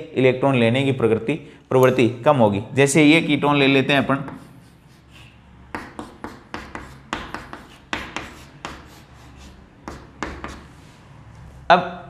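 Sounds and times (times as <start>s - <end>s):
chalk scraping on blackboard: 4.2s - 11.2s.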